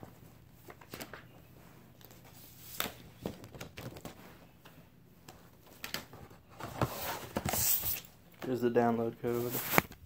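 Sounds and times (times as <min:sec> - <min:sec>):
paper and cardboard rustling: 0:09.2 - 0:10.0.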